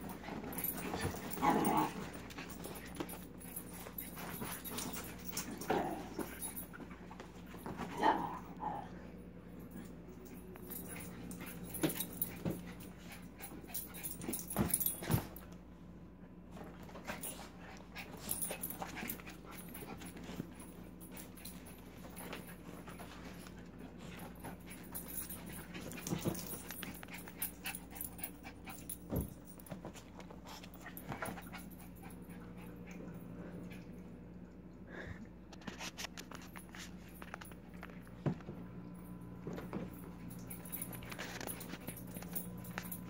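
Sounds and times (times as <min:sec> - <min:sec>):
paws and bodies thumping: 0:00.0 - 0:08.0, 0:10.6 - 0:15.5, 0:16.6 - 0:32.6
steady low hum: 0:00.0 - 0:43.0.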